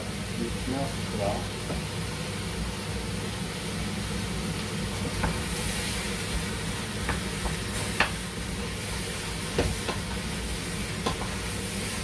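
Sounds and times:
vegetables sizzling in a pot: 0:00.0 - 0:12.0.

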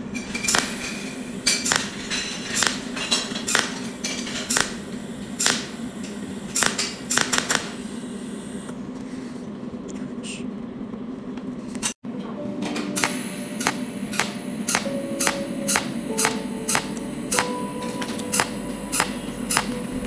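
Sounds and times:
steady low hum: 0:00.0 - 0:20.0
welding machine snapping cracks: 0:00.4 - 0:04.8, 0:05.4 - 0:05.7, 0:06.5 - 0:07.8.

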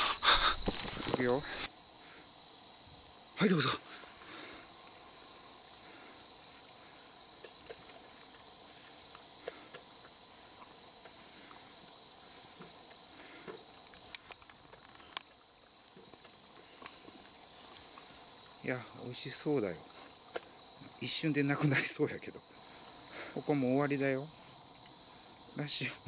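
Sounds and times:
night insects chirping: 0:00.0 - 0:26.0.

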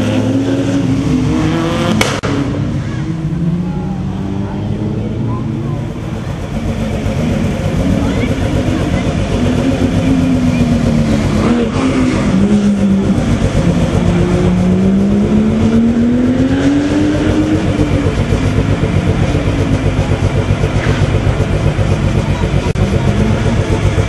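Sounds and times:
car engines running at low speed: 0:00.0 - 0:24.0
rally car engine revving: 0:00.0 - 0:24.0.

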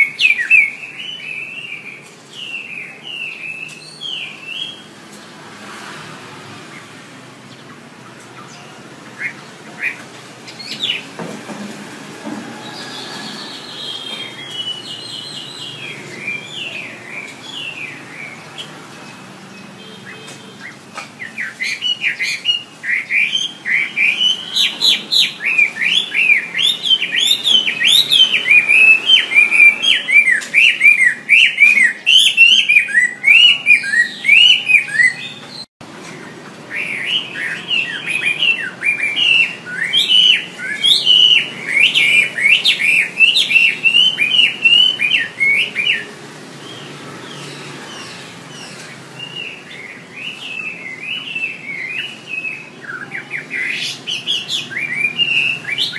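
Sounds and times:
bird singing whistled phrases: 0:00.0 - 0:04.8, 0:19.8 - 0:35.4, 0:36.7 - 0:46.1, 0:49.2 - 0:55.9.

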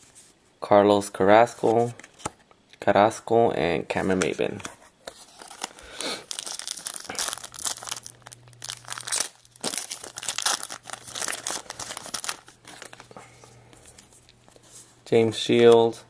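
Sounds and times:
foil wrapper crinkling and tearing: 0:05.2 - 0:13.1.

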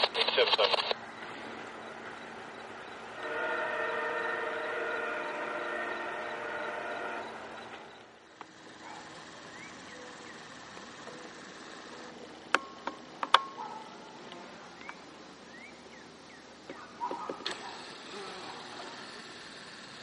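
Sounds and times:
sharp clicks: 0:00.0 - 0:01.0
faint outdoor ambience: 0:00.0 - 0:20.0
train horn: 0:03.1 - 0:07.9.

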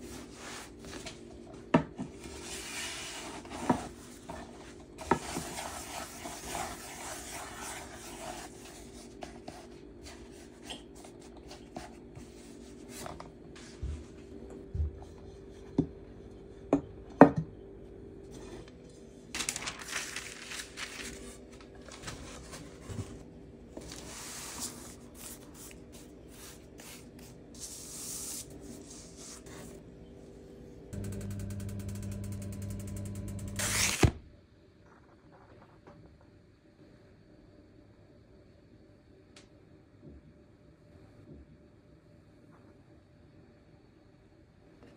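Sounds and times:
steady low hum: 0:00.0 - 0:34.6
rustling: 0:19.4 - 0:23.2.

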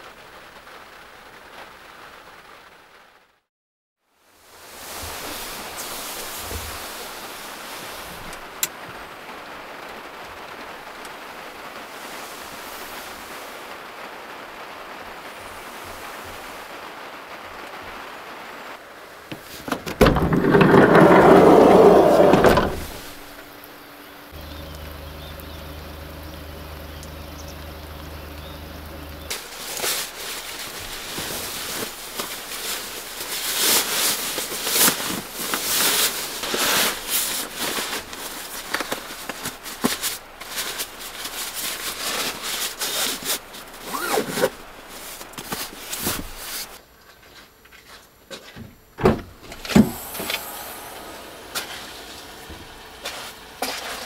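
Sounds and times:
steady hiss: 0:04.1 - 0:20.2, 0:20.9 - 0:54.0
low hum: 0:20.0 - 0:29.3
sleeping bag stuffed into sack: 0:29.2 - 0:46.8, 0:49.9 - 0:54.0
loud rushing noise: 0:49.8 - 0:53.6.

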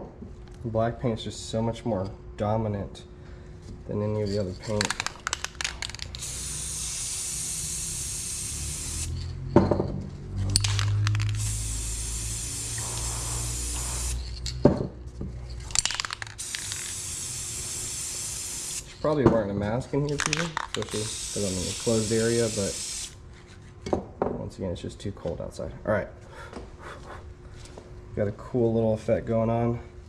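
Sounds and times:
spray paint can hissing: 0:04.8 - 0:09.2, 0:10.6 - 0:14.4, 0:15.8 - 0:18.9, 0:20.4 - 0:23.2.

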